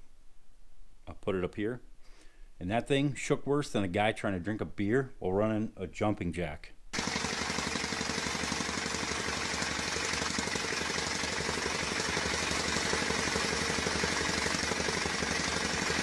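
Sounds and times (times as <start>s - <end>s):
jackhammer hammering: 7.0s - 16.0s.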